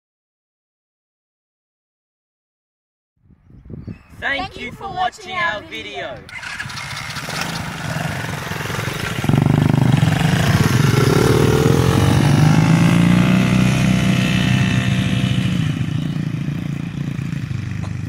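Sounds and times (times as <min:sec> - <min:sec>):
small petrol engines revving: 0:06.2 - 0:18.0.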